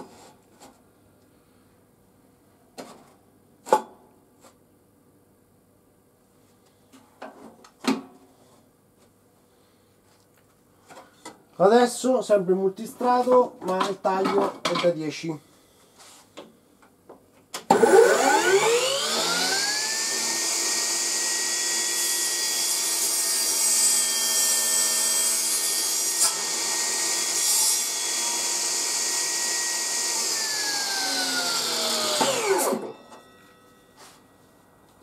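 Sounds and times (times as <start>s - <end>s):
saw ripping plywood: 17.7s - 32.9s
table saw motor whine: 17.7s - 33.4s.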